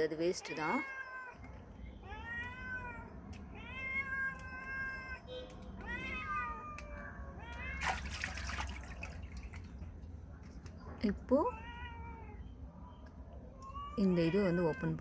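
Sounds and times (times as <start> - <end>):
cat meowing: 0.4 - 8.5, 13.5 - 15.0
water splashing in steel bowl: 7.8 - 9.8.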